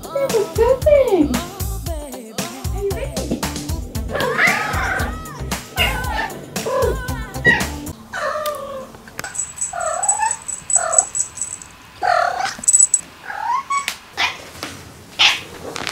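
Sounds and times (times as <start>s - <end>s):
faint high pulsing tone: 9.3s - 11.7s, 12.6s - 13.0s
cat trilling and squeaking: 9.6s - 11.4s.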